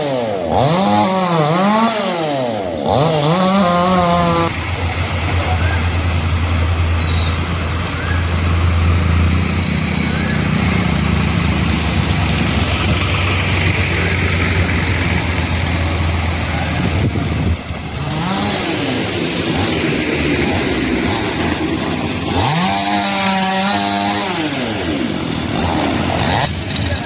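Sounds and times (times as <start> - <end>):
vehicle engine humming: 2.4 - 27.0
street noise hiss: 4.2 - 22.3, 23.8 - 27.0.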